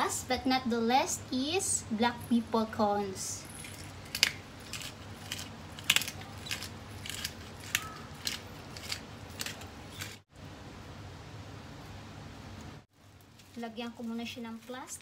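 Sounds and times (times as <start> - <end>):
pepper mill crunchy clicks: 3.6 - 10.2.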